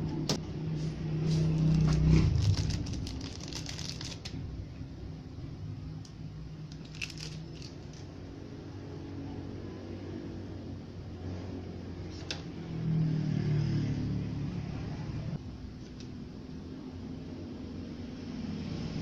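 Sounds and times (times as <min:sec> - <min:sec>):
low rumble: 0:00.5 - 0:05.8
plastic bag crinkling: 0:01.4 - 0:04.4, 0:06.7 - 0:08.1.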